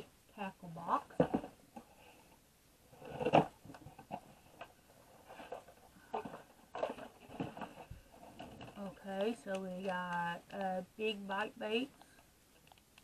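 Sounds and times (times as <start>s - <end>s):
cardboard scraping: 2.9s - 9.4s.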